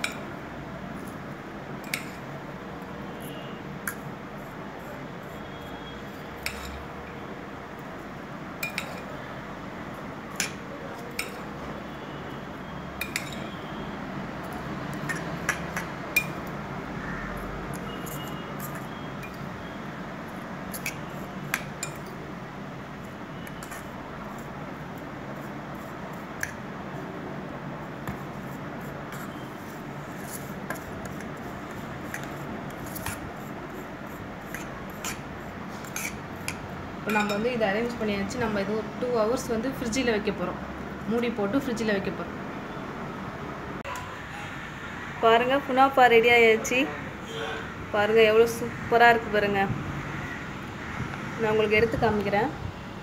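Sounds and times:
metal spoon scraping steel bowl: 5.2 - 7.0, 17.4 - 19.5, 20.7 - 22.2, 23.4 - 24.6, 28.3 - 37.6.

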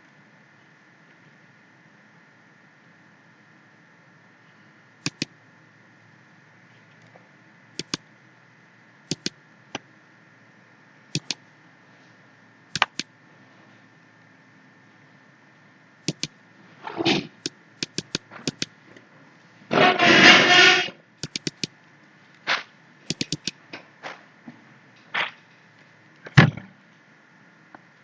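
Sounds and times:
computer mouse clicking: 5.0 - 5.3, 7.8 - 8.0, 9.1 - 9.4, 11.1 - 11.4, 12.8 - 13.1, 16.0 - 16.4, 17.4 - 18.7, 21.2 - 21.7, 23.1 - 23.6
scraping or rubbing noises: 19.7 - 20.9.

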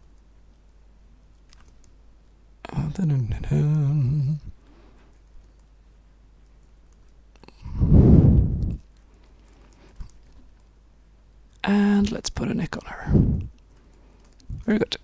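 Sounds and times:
person humming: 2.7 - 4.6.

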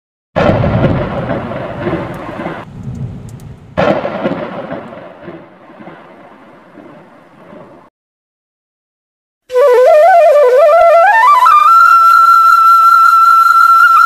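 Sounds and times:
thunder crashes: 0.4 - 7.9.

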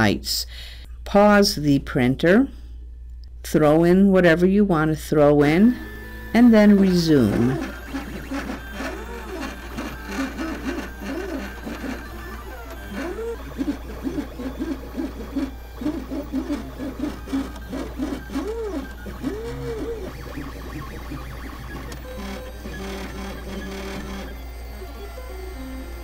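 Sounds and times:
stepper motors whining: 5.6 - 26.0.

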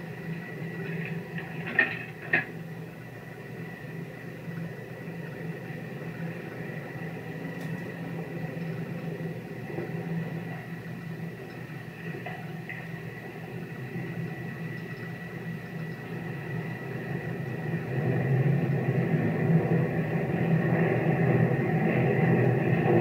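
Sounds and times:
old soundtrack hum and hiss: 0.0 - 23.0.

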